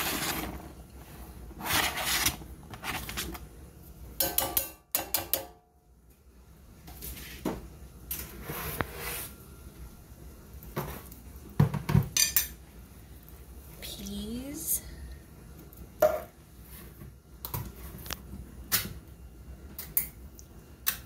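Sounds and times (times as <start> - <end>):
onion scraped into pot: 0.0 - 0.8, 1.6 - 3.3.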